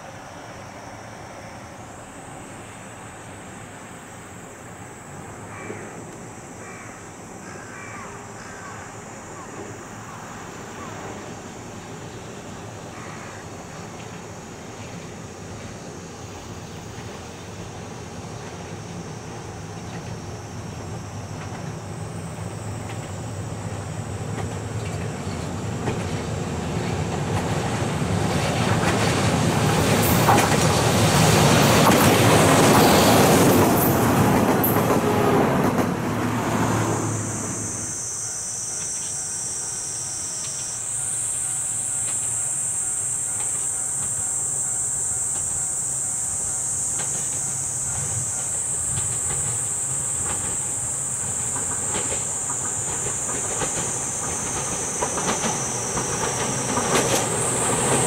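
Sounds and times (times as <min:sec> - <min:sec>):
electric train passing: 0:00.0 - 0:58.0
high-pitched drone: 0:31.0 - 0:58.0.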